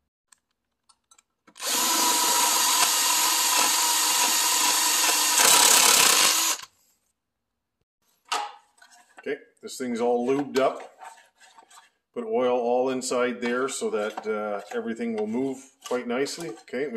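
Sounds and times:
power drill drilling: 0:01.6 - 0:06.7.

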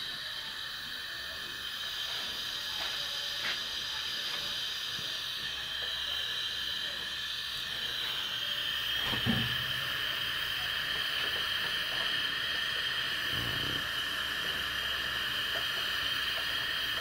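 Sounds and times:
stove burner hissing: 0:00.0 - 0:17.0
thump: 0:09.1 - 0:09.6.

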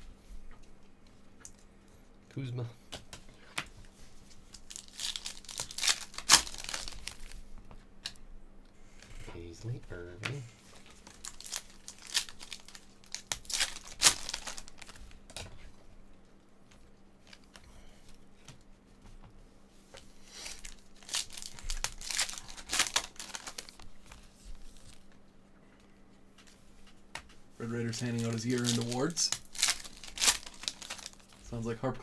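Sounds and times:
foil wrappers crinkling and tearing: 0:04.3 - 0:07.4, 0:10.7 - 0:15.2, 0:20.3 - 0:25.2, 0:27.6 - 0:31.6.

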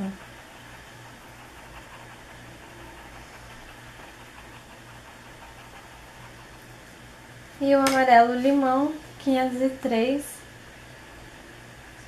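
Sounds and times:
colored pencil scratching on paper: 0:00.0 - 0:06.7
steady low hum: 0:00.0 - 0:12.0.

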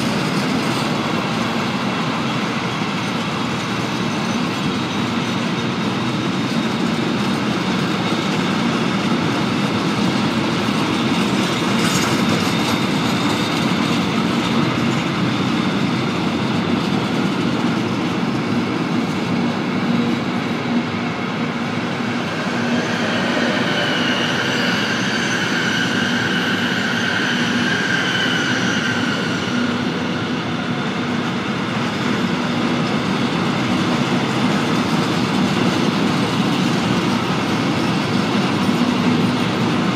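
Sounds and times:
train wheels clattering over joints: 0:00.0 - 0:29.9
wheels squealing: 0:06.6 - 0:30.8.

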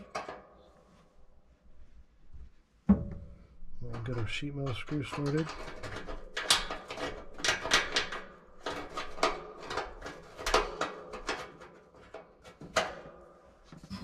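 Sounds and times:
small metallic clicks and scrapes: 0:03.8 - 0:14.0.

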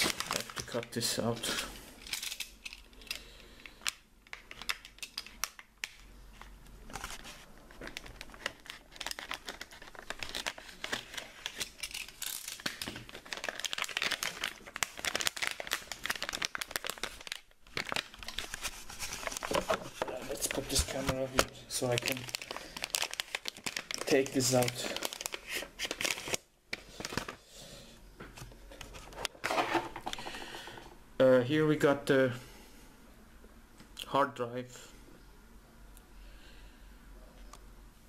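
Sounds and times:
foil bag crinkling and tearing: 0:00.0 - 0:02.7, 0:06.9 - 0:27.4.

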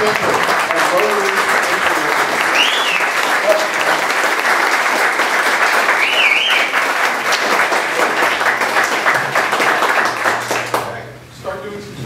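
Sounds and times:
crowd clapping: 0:00.0 - 0:11.2.

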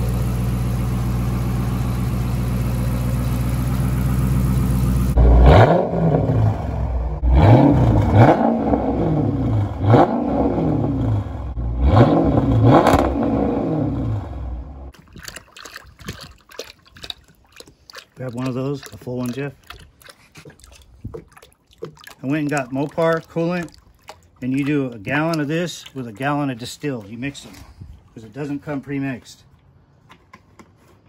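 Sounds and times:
car engine idling and revving: 0:00.0 - 0:14.9.

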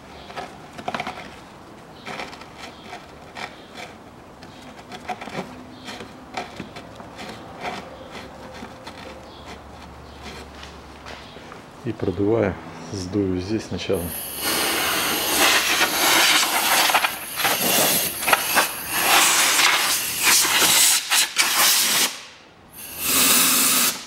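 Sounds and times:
gloved hand rustling and rubbing: 0:00.0 - 0:11.4.

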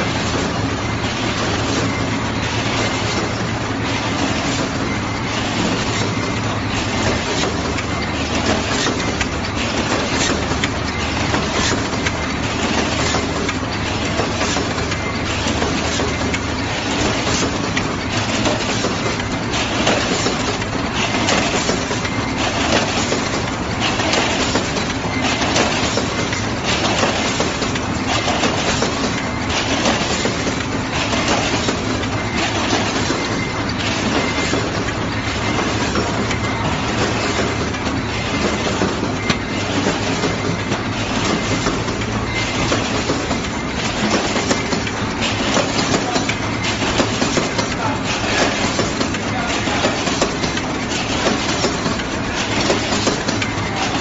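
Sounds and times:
machine mechanical clatter: 0:00.0 - 0:54.0.

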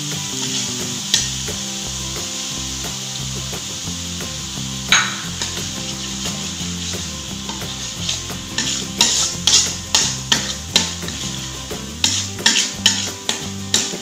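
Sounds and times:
background music: 0:00.0 - 0:14.0
paste sizzling: 0:00.0 - 0:14.0
metal spoon scraping a wok: 0:00.2 - 0:01.5, 0:04.9 - 0:14.0.

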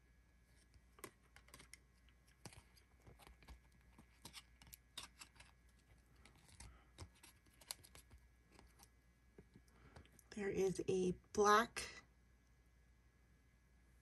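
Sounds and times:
trading cards flipped by hand: 0:00.6 - 0:08.9.

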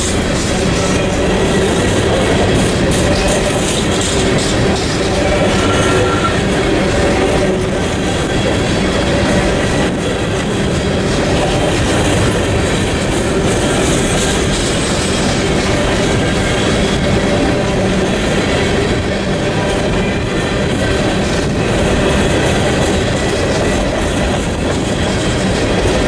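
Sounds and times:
train wheels rumbling and clattering: 0:00.0 - 0:26.0.

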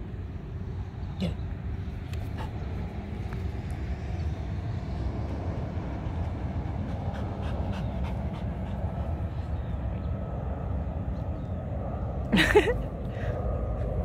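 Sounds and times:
dog panting: 0:02.1 - 0:03.5, 0:05.3 - 0:09.8.

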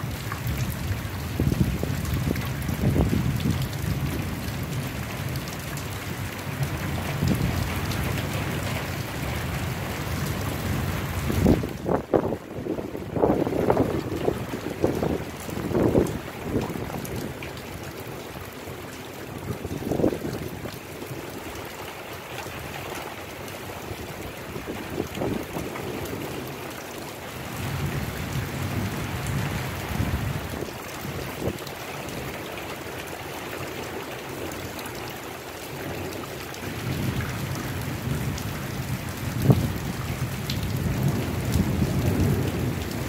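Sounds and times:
steady rain: 0:00.0 - 0:43.0
low thunder rumbles: 0:00.1 - 0:05.4, 0:24.0 - 0:26.6, 0:36.7 - 0:43.0.

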